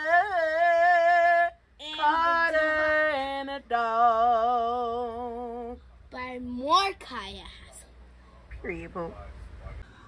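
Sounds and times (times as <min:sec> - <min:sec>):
person singing with vibrato: 0:00.0 - 0:05.8.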